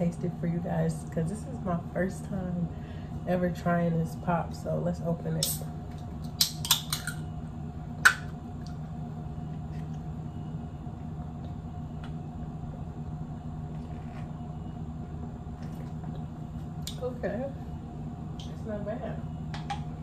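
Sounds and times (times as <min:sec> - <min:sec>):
low hum: 0:00.0 - 0:20.0
soda can opening crack: 0:06.3 - 0:07.2.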